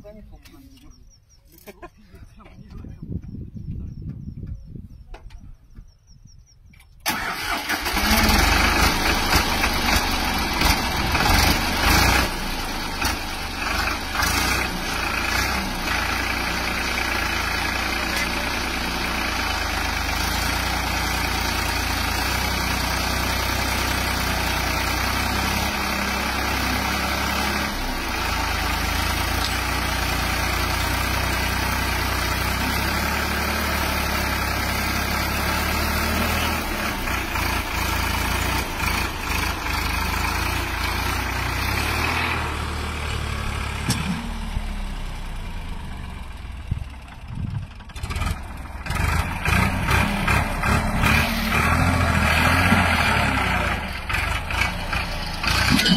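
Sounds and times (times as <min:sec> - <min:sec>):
tractor diesel engine under load: 0:07.0 - 0:55.9
tyres churning sand: 0:48.8 - 0:55.9.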